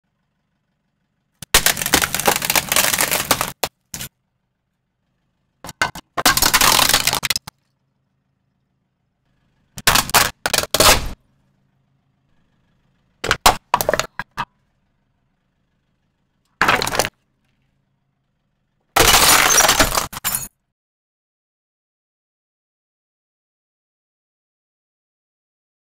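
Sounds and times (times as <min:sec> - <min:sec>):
plastic cracking under car tyre: 0:01.4 - 0:04.1, 0:05.8 - 0:07.6.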